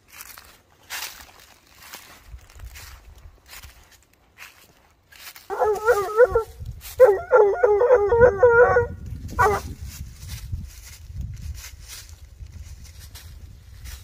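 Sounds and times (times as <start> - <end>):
footsteps in dry leaves: 0.0 - 14.0
hound bawling: 5.5 - 9.7.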